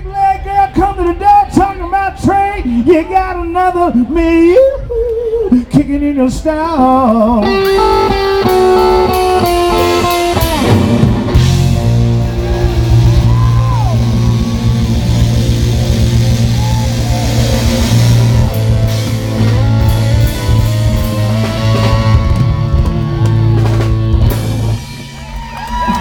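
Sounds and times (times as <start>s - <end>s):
bass guitar: 0.0s - 26.0s
electric guitar lead: 7.2s - 26.0s
drums and cymbals: 7.5s - 26.0s.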